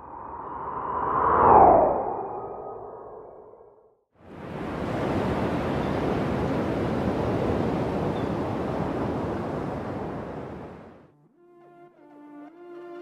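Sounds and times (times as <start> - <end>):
ocean surf roaring: 4.2 - 11.0
music with soft horn notes: 11.1 - 13.0.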